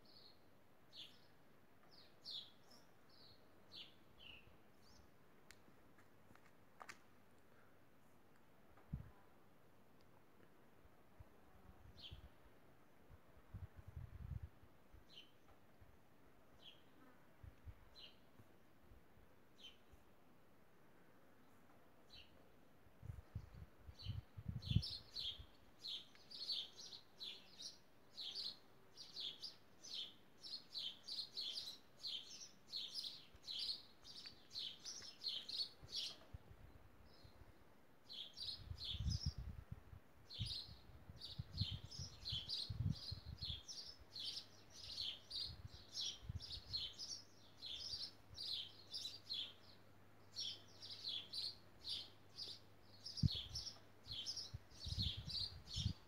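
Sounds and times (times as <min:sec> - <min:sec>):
small bird chirping: 0:23.3 - 0:36.3, 0:40.3 - 0:56.0.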